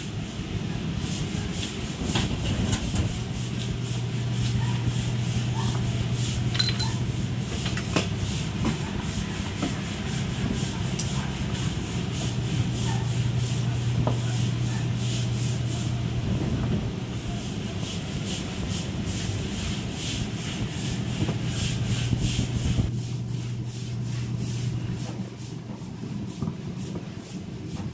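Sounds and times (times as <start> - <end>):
metal utensils clinking: 6.5 - 7.0.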